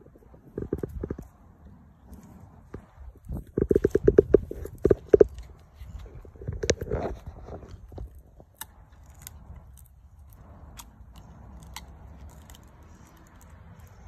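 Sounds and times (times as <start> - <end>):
puppy chewing a stick: 0.0 - 14.0
stick snapping: 8.4 - 14.0.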